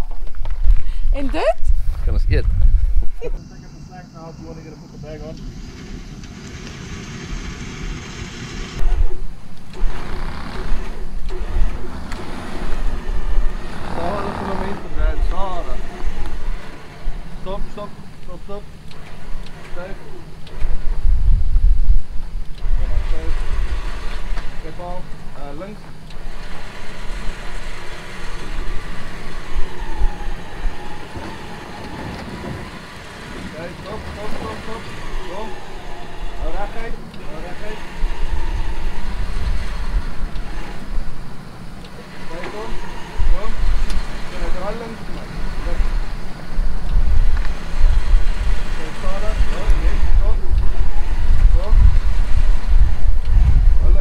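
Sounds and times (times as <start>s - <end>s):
wind on microphone: 0.0s - 3.4s, 20.4s - 24.4s, 37.8s - 41.5s, 45.3s - 54.0s
off-road vehicle engine running: 0.0s - 54.0s
electric winch motor whining: 3.4s - 54.0s.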